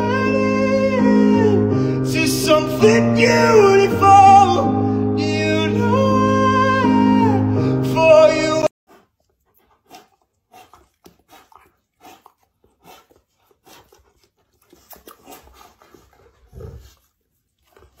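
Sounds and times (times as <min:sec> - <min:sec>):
music with singing: 0:00.0 - 0:08.7
dog licking and breathing: 0:08.9 - 0:18.0
low dog sound: 0:08.9 - 0:18.0.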